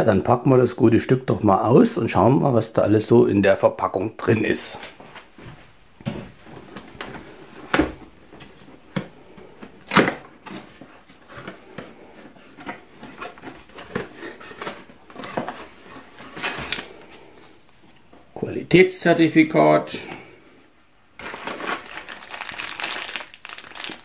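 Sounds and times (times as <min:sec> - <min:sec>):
cardboard rustling and scraping: 0:05.0 - 0:17.5.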